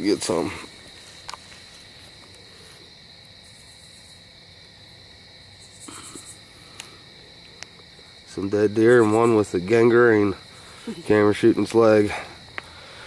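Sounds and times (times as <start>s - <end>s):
crickets chirping: 0.0s - 13.0s.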